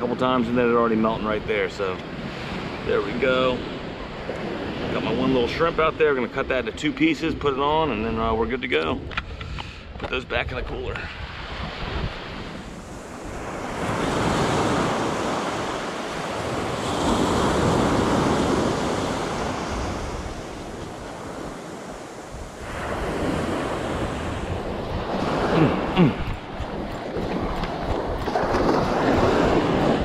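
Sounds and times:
small surf washing up sand beach: 11.2 - 30.0.

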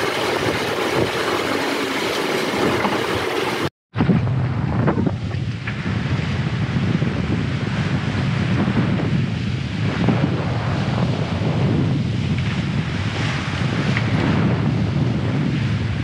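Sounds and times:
boat wake rushing and splashing: 0.0 - 3.7
wind buffeting microphone: 0.0 - 16.0.

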